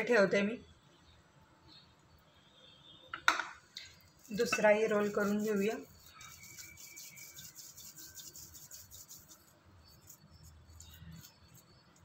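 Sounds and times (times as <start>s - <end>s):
palms rolling dough on wooden board: 4.2s - 12.0s.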